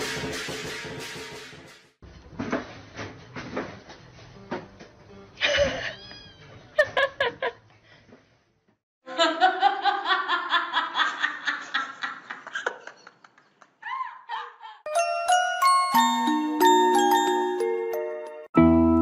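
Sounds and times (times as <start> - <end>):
person laughing: 5.4 - 6.1.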